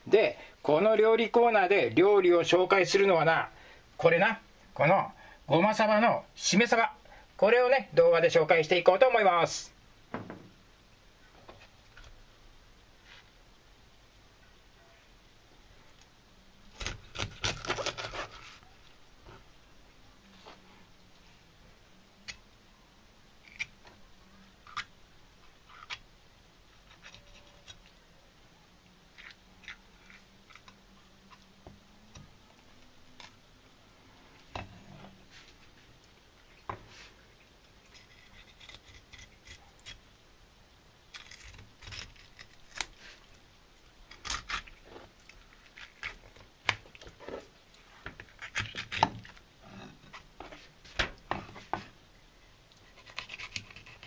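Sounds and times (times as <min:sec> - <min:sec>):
knife scraping along fish: 0:17.2 - 0:18.6, 0:52.9 - 0:54.0.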